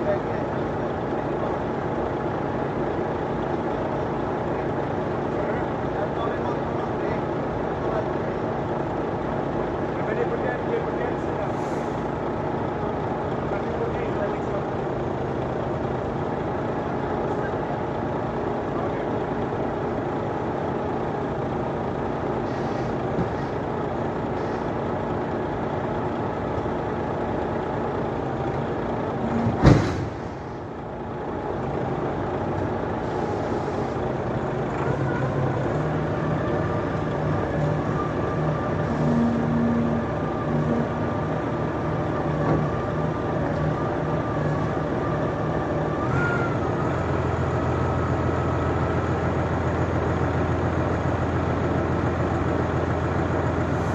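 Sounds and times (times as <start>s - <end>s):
diesel machinery running: 0.0s - 53.9s
sharp bang: 29.3s - 30.4s.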